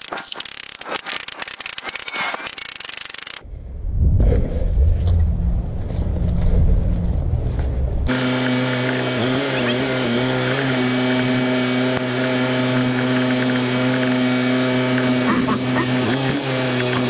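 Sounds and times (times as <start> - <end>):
loud low rumble: 3.4 - 8.1.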